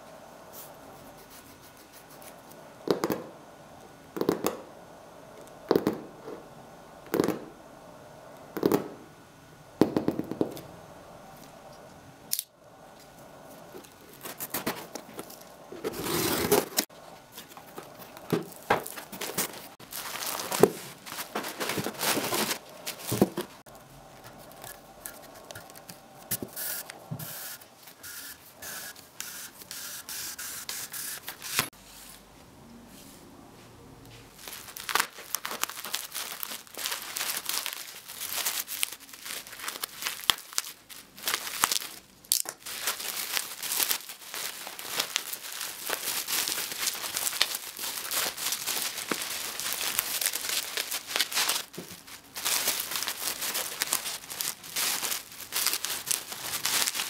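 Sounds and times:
packaging being scraped with blade: 15.8 - 16.9
packaging tearing and crinkling: 17.7 - 23.6, 34.4 - 57.0.

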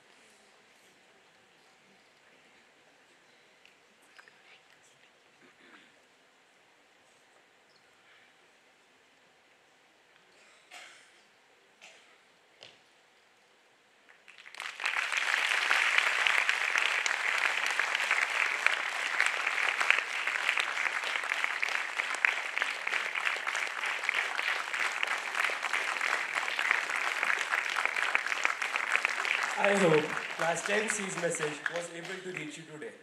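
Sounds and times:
audience applauding: 14.2 - 32.9.

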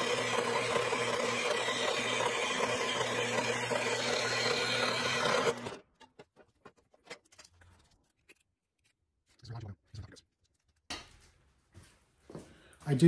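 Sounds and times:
band saw cutting steel: 0.0 - 6.2.

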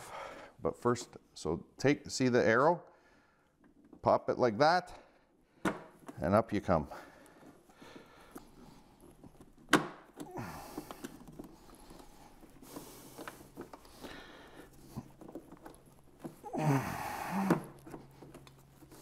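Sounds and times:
glove rustling: 5.8 - 19.0.

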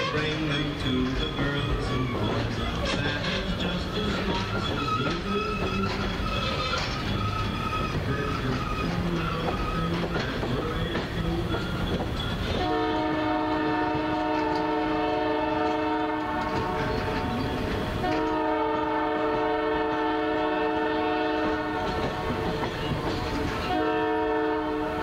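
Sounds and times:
locomotive air horn blasts: 0.0 - 0.5, 12.5 - 22.8, 23.4 - 25.0
train cars rumbling on rails: 0.0 - 25.0.

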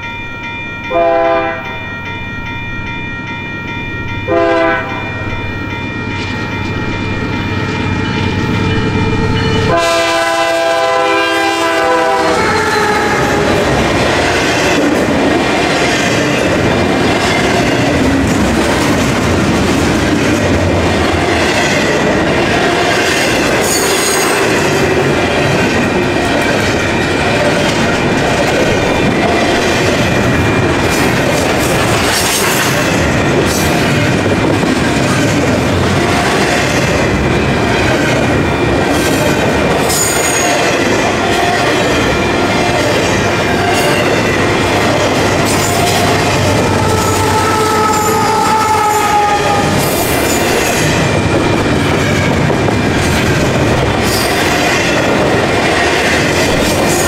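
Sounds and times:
train cars rumbling past: 0.0 - 57.0
locomotive air horn blasts: 0.9 - 1.7, 4.3 - 5.2, 9.6 - 13.6, 46.6 - 49.8.

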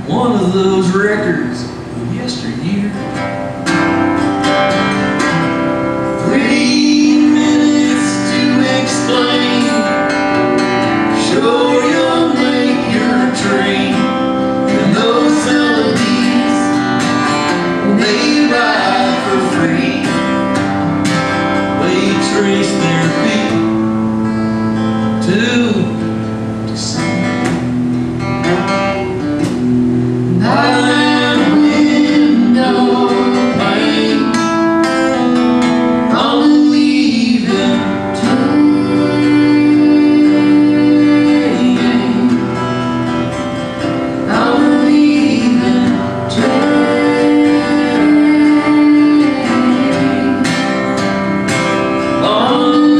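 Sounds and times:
strummed acoustic guitar: 0.0 - 52.9
man and woman singing: 6.1 - 20.7, 21.5 - 23.8, 30.3 - 35.4, 36.0 - 42.9, 44.1 - 52.9.

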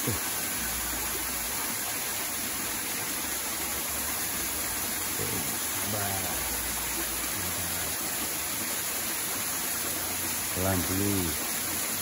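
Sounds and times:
stream running over rocks: 0.0 - 12.0
faint voice speaking: 5.2 - 6.5.

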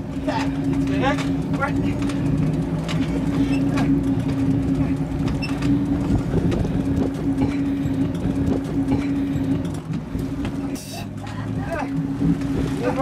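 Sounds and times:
boat engine humming: 0.0 - 13.0
water noise: 0.0 - 13.0
wind noise: 6.0 - 7.3.

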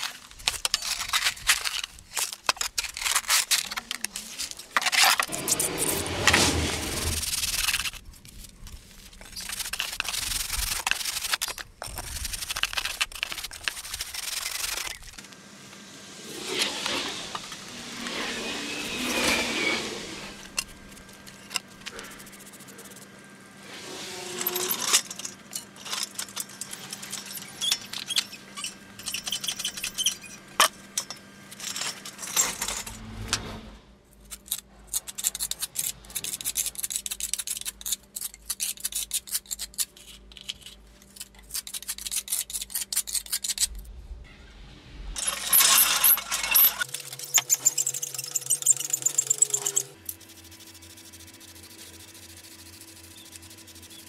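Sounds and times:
steady low hum: 0.1 - 38.4
metal pieces clinking and rattling: 24.4 - 33.0, 45.2 - 50.2.

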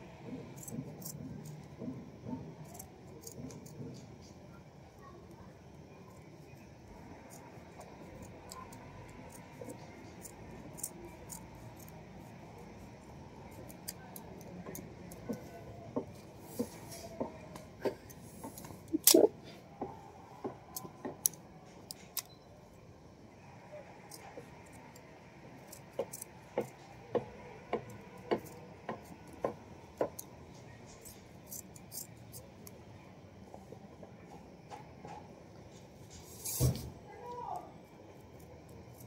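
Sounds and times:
scissors snipping fabric: 0.2 - 4.4, 7.2 - 19.3, 24.0 - 32.7.

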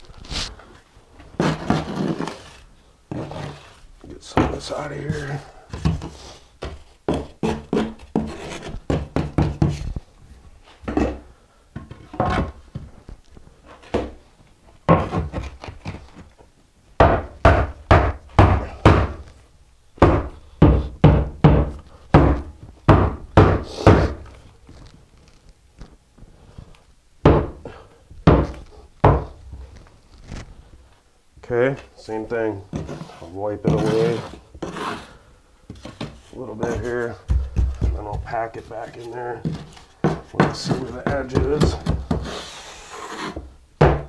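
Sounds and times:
rubber mallet thudding on wood: 17.0 - 19.3, 20.0 - 24.2, 27.2 - 27.6, 28.2 - 29.4, 35.8 - 38.4, 39.4 - 42.3, 43.8 - 44.0.

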